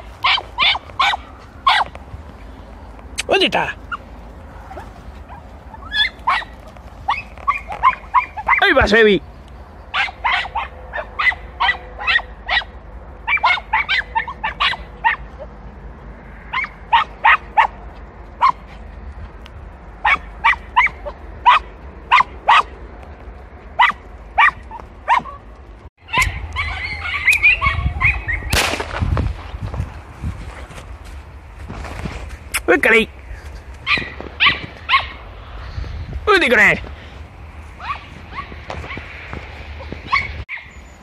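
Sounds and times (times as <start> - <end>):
hounds yelping: 0.0 - 2.0, 3.8 - 9.0, 9.8 - 15.6, 16.4 - 17.8, 18.4 - 18.8, 20.0 - 22.8, 23.7 - 28.5, 33.8 - 35.3, 37.7 - 41.0
brush rustling: 0.0 - 8.7, 28.5 - 35.9.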